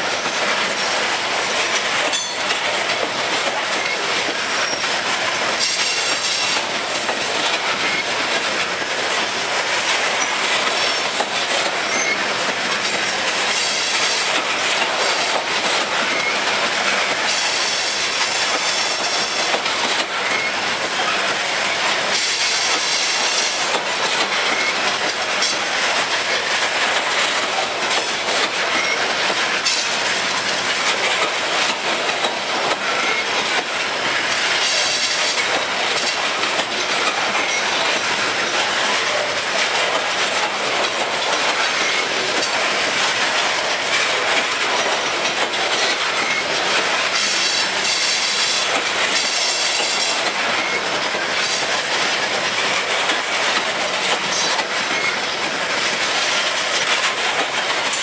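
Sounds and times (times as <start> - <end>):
train wheels clattering on rails: 0.0 - 58.0
high wheel squeal: 4.6 - 4.9, 11.9 - 12.2.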